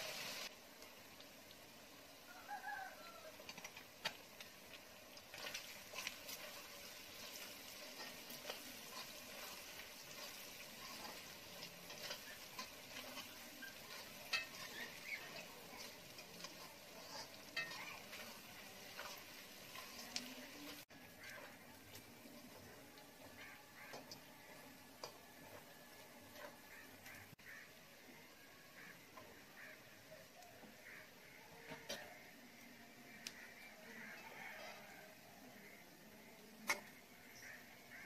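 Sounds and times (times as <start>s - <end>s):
meat sizzling in oil: 0.0s - 28.1s
spatula scraping metal pan: 5.3s - 25.7s.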